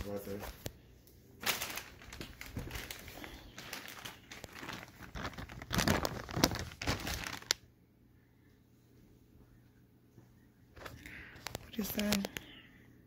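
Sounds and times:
plastic bag crinkling: 0:01.4 - 0:07.7.

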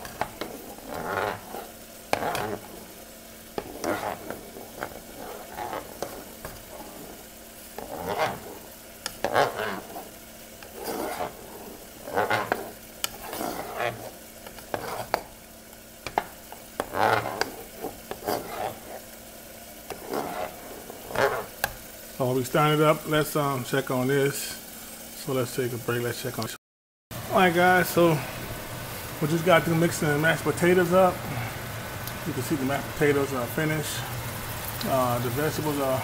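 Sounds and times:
utensil scraping saucepan: 0:00.0 - 0:15.4, 0:16.0 - 0:19.2, 0:19.8 - 0:21.8.

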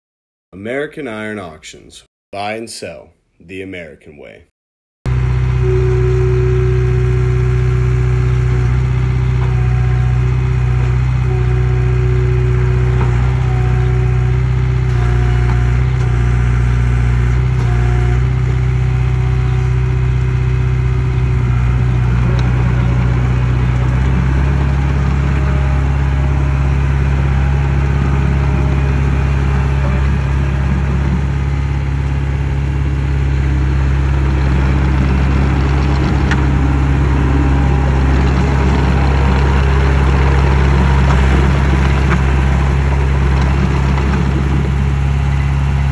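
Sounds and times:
dozer diesel engine running: 0:05.1 - 0:45.9.

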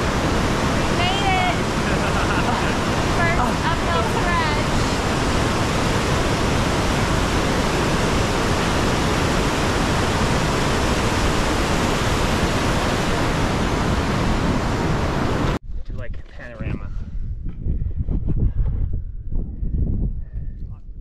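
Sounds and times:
large waterfall rushing: 0:00.0 - 0:15.6.

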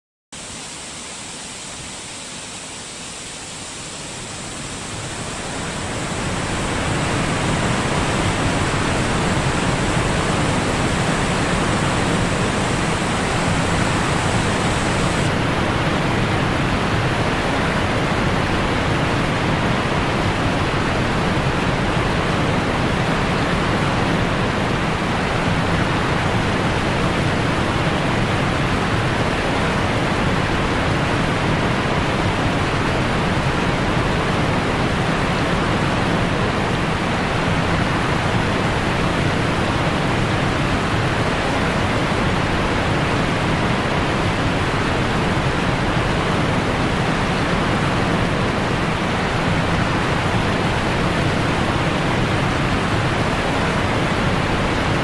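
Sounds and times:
thin high hiss: 0:00.4 - 0:15.3
waterfall rushing: 0:00.4 - 0:55.0.

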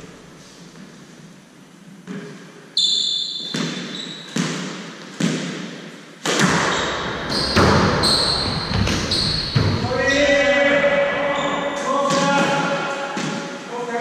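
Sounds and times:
shoes squeaking on wooden floor: 0:02.8 - 0:04.6, 0:06.5 - 0:10.4, 0:11.1 - 0:11.9
ball hitting walls: 0:03.4 - 0:10.1, 0:12.0 - 0:13.6
squash ball bouncing on floor: 0:03.5 - 0:09.9
racket striking ball: 0:03.6 - 0:09.8.

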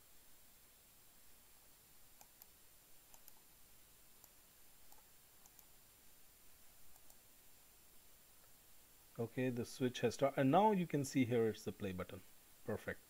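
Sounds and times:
computer mouse clicks: 0:02.2 - 0:03.5, 0:04.2 - 0:05.7, 0:06.9 - 0:07.2.

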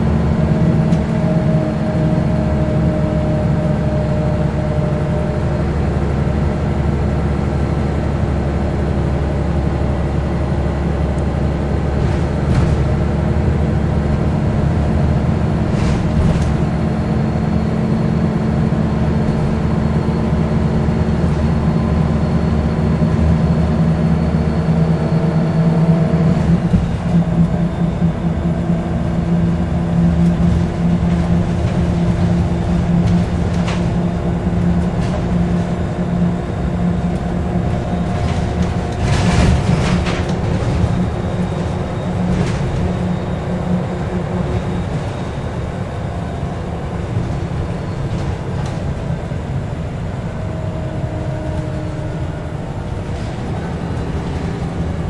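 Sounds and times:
bus engine drone: 0:00.0 - 0:55.0.

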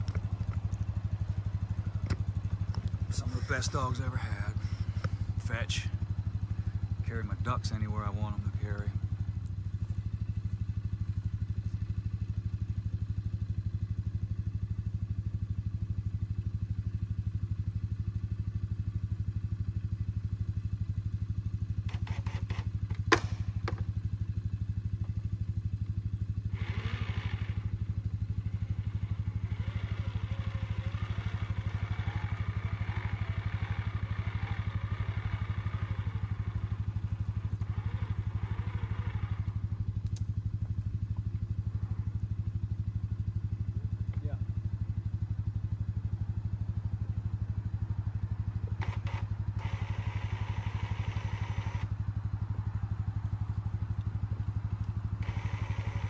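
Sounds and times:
small engine running: 0:00.0 - 0:56.0.

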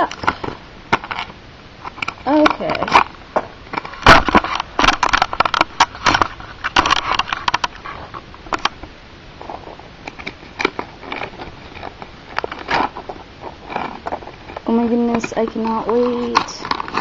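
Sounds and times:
plastic packet crinkling: 0:09.4 - 0:17.0.

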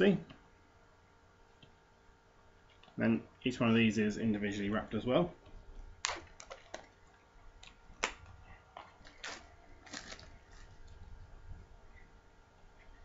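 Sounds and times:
cardboard boxes and cellophane clicking: 0:08.8 - 0:11.0.

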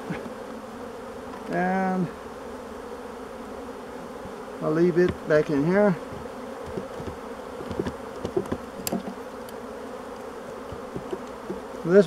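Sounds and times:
bees buzzing: 0:00.0 - 0:12.0
clicks and knocks of wooden frames: 0:06.1 - 0:09.2, 0:10.5 - 0:11.6.

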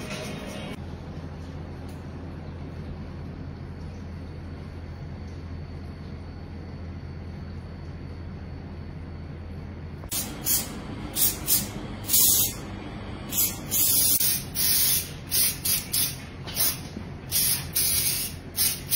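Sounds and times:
aerosol spray hissing: 0:10.1 - 0:12.6, 0:13.3 - 0:18.9.

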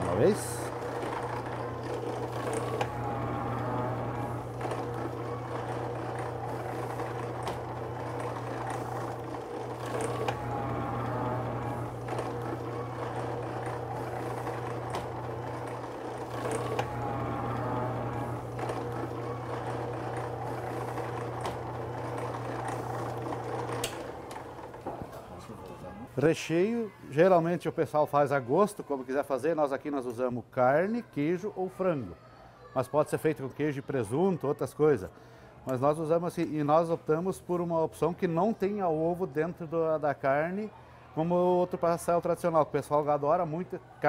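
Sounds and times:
dough sheeter motor hum: 0:00.0 - 0:26.2.

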